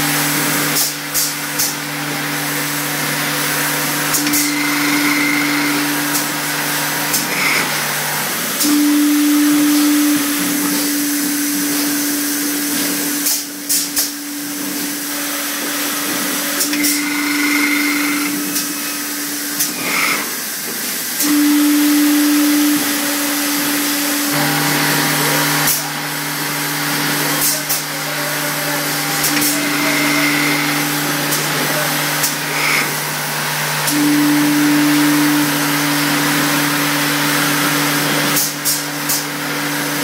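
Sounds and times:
machine motor hum: 0:00.0 - 0:40.0
pitched drone: 0:27.3 - 0:33.0.

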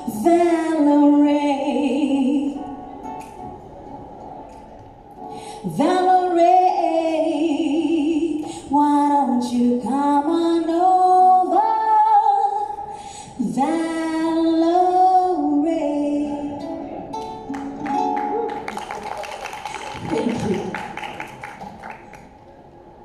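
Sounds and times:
woman singing into a microphone: 0:00.0 - 0:02.9, 0:05.4 - 0:16.9
acoustic guitar: 0:00.0 - 0:19.0.

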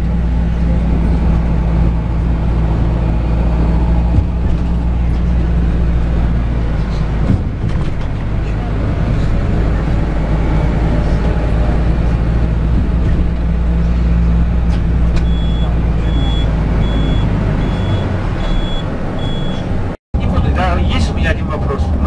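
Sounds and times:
coach engine and road drone: 0:00.0 - 0:22.0
high electronic warning beep: 0:15.3 - 0:19.7.

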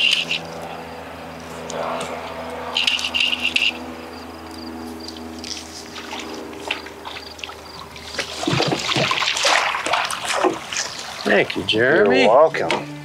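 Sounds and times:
fish splashing in water: 0:05.6 - 0:11.5.

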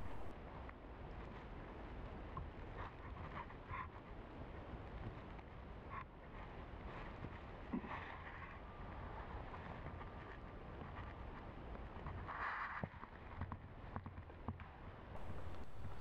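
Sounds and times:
faint indistinct noises: 0:00.0 - 0:00.3, 0:15.1 - 0:16.0
wind rumble on microphone: 0:00.0 - 0:16.0.

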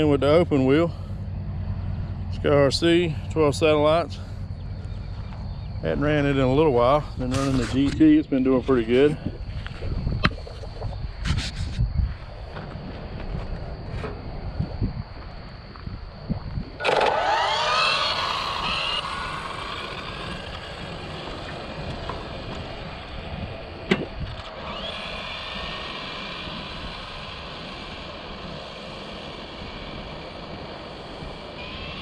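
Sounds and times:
electric motor whining: 0:16.8 - 0:32.0.

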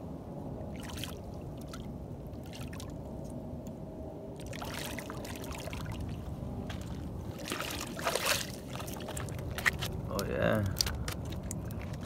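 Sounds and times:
low background rumble: 0:00.0 - 0:12.0
fish splashing in shallow water: 0:00.7 - 0:03.2, 0:04.3 - 0:10.1, 0:10.8 - 0:12.0.

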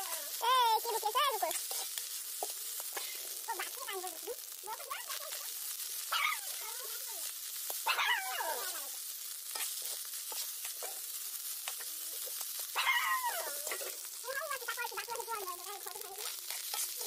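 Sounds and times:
food sizzling in wok: 0:00.0 - 0:17.0
stirring scraping ticks: 0:00.0 - 0:17.0
falling cries: 0:07.9 - 0:09.0, 0:12.8 - 0:13.8.

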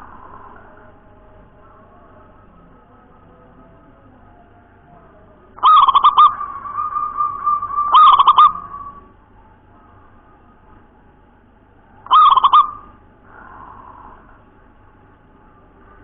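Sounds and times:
dove cooing song: 0:05.4 - 0:10.2, 0:11.9 - 0:14.6.

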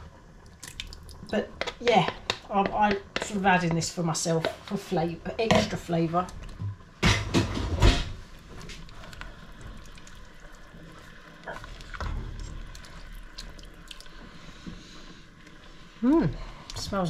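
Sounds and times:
spatula stirring soup in a pot: 0:00.9 - 0:06.6, 0:08.2 - 0:16.0.

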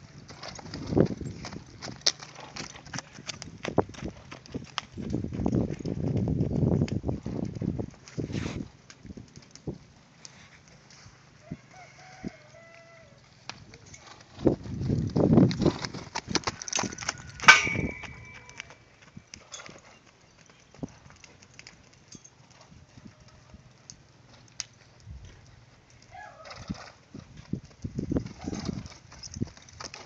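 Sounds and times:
horse hooves on dirt: 0:00.0 - 0:30.0
sharp ringing clang: 0:17.4 - 0:18.6.

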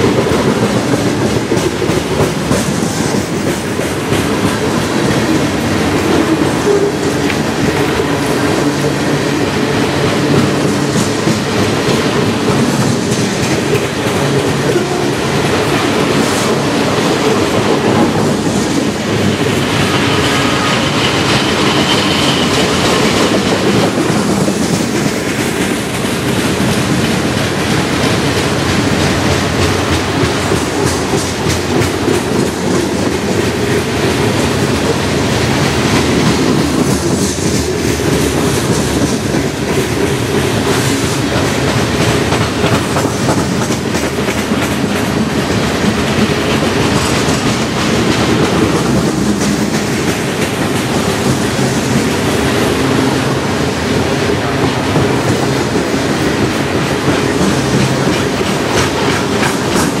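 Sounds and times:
clickety-clack of wheels: 0:00.0 - 1:00.0
freight train wheels rumbling on rail: 0:00.0 - 1:00.0.

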